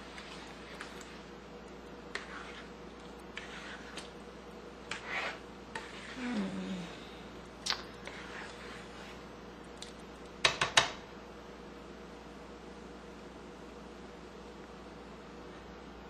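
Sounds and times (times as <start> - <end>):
spoon stirring thick food in pan: 0.0 - 6.2, 7.3 - 11.0.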